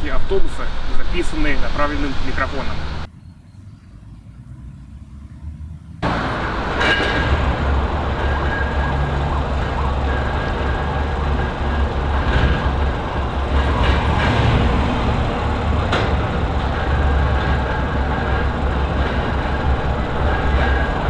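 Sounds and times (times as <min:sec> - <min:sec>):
bus engine idling: 0:06.0 - 0:21.0.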